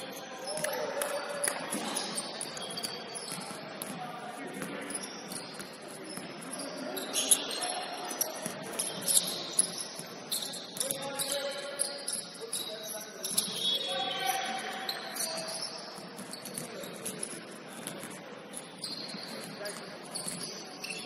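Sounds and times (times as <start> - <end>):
basketball bouncing on wooden court: 0.0 - 12.3, 13.2 - 21.0
faint players' voices: 0.0 - 21.0
sneakers squeaking: 0.0 - 21.0.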